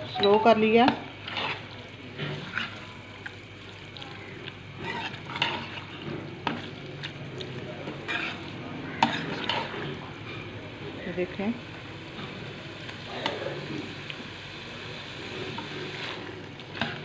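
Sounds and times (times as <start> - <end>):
chicken sizzling in pot: 0.0 - 17.0
metal spoon scraping pot: 8.1 - 8.4.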